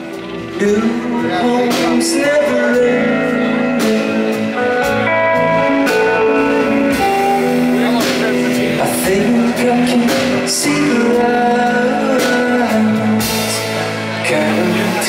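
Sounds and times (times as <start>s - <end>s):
live rock band playing: 0.0s - 15.0s
man singing into microphone: 0.4s - 4.8s, 7.8s - 15.0s.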